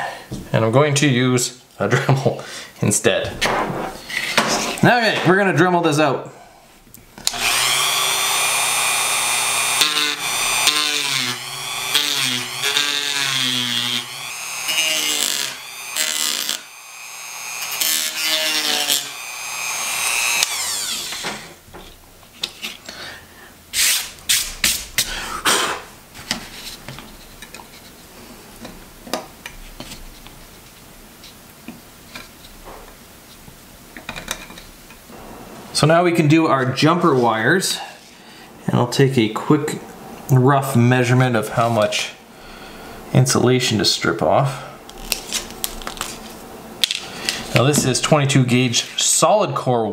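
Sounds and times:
rotary tool grinding plastic: 7.3s - 21.6s.

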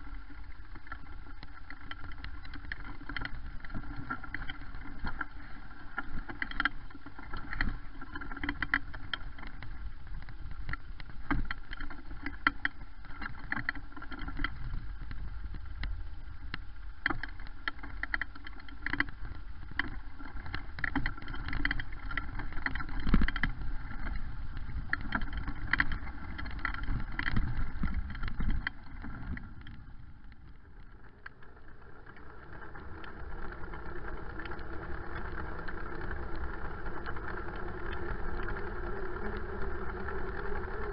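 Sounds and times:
bicycle humming on paved path: 0.0s - 40.9s
wind and tyre rumble: 0.0s - 40.9s
bicycle rattling and knocking: 17.0s - 40.9s.

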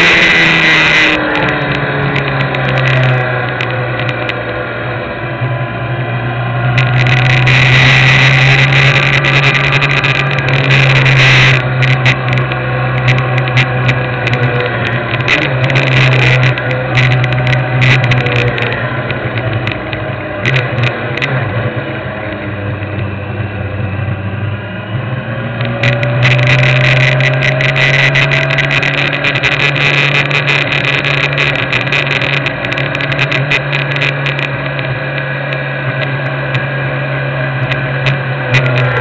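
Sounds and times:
clicks: 0.0s - 4.5s, 6.7s - 21.4s, 25.6s - 36.7s, 37.6s - 39.0s
motorcycle engine at low revs: 0.0s - 39.0s
wind noise on microphone: 0.0s - 39.0s.

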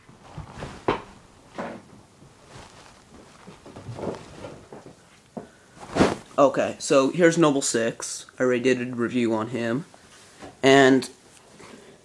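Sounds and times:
objects knocking and rustling: 0.0s - 6.4s.

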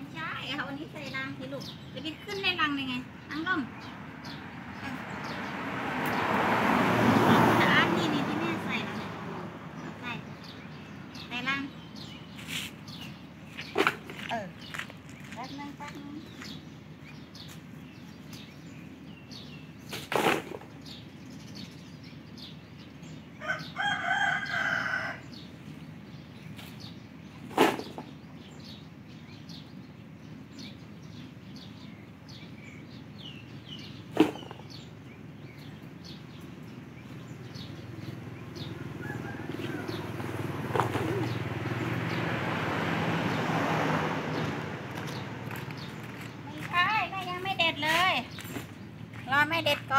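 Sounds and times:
small birds chirping: 0.0s - 49.9s
rooster crowing: 23.4s - 25.4s, 38.8s - 40.6s.

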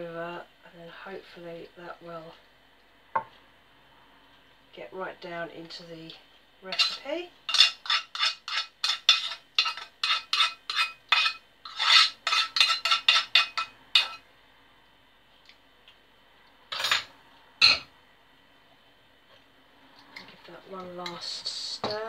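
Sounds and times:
spoon scraping metal saucepan: 6.7s - 14.2s.

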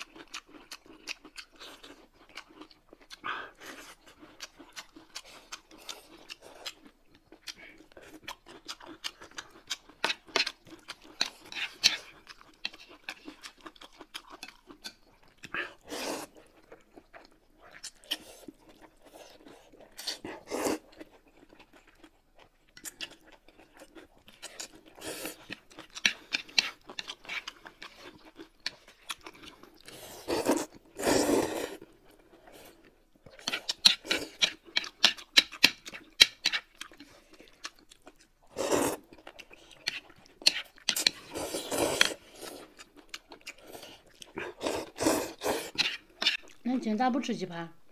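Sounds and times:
chewing with wet smacks: 0.0s - 31.0s, 31.8s - 46.8s
noodle slurps: 29.8s - 31.9s, 38.5s - 39.1s, 39.9s - 42.8s, 43.5s - 46.4s.

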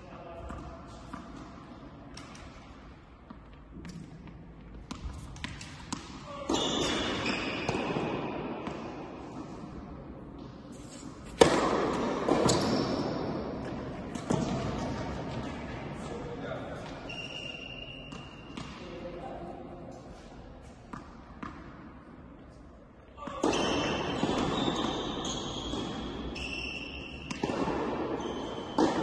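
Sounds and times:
tennis ball bouncing on court: 0.4s - 9.8s, 18.1s - 18.8s, 20.8s - 21.8s, 27.2s - 29.0s
racket striking ball with echo: 0.4s - 15.8s, 23.2s - 29.0s.

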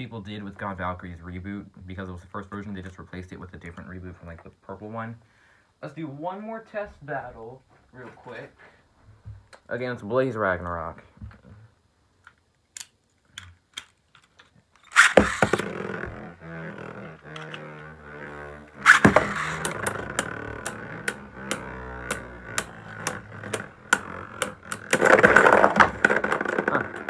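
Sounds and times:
spinning tops launched: 14.8s - 27.0s
tops whirring hum: 14.8s - 27.0s
tops clacking together: 14.9s - 27.0s
tops clattering apart: 14.9s - 27.0s.

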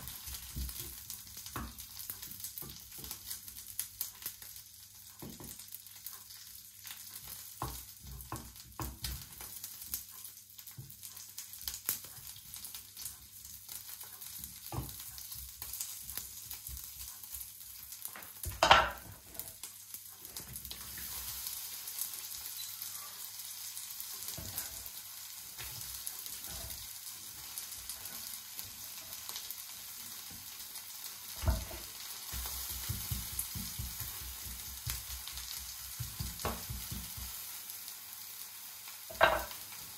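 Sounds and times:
food sizzling in a frying pan: 0.0s - 39.9s
utensil scraping in a pan: 24.1s - 29.5s, 31.3s - 37.4s, 39.1s - 39.8s.

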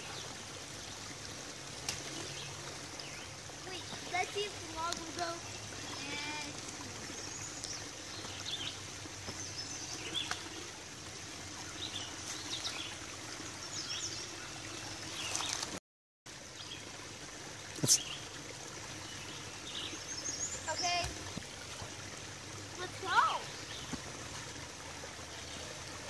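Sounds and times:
creek trickling over rocks: 0.0s - 26.0s
birds chirping: 2.2s - 10.8s, 11.6s - 15.7s, 18.9s - 21.9s, 22.8s - 24.4s.

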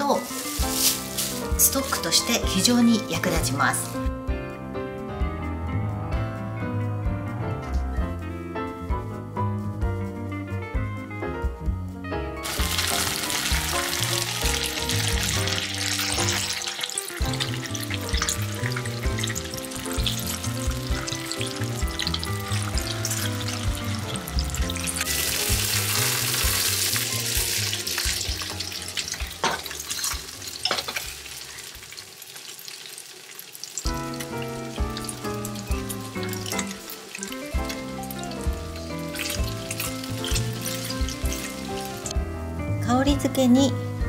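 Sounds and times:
fish sizzling in oil: 0.0s - 4.0s, 12.4s - 42.2s.

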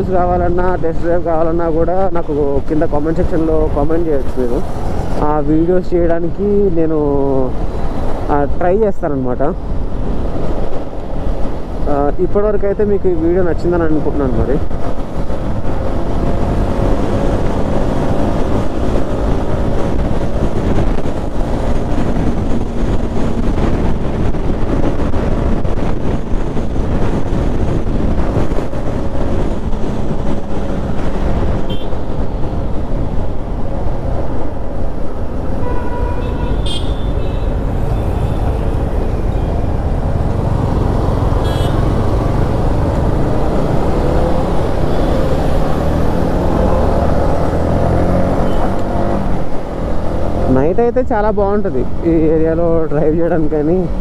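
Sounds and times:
wind rush over helmet: 14.6s - 47.8s
vehicle horn toots: 31.7s - 32.1s, 35.6s - 37.6s, 41.4s - 41.9s.

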